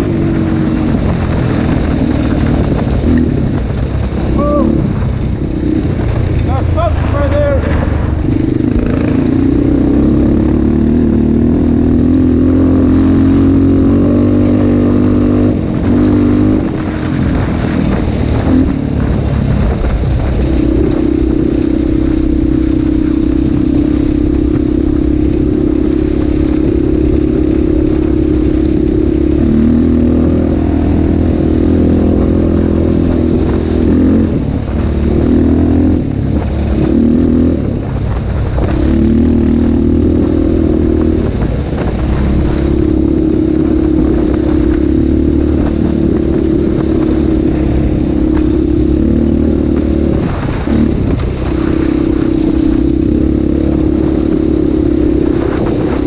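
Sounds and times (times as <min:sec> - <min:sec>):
tyres on gravel: 0:00.0 - 0:12.2
quad engine running: 0:00.0 - 0:56.0
wind hiss: 0:00.0 - 0:56.0.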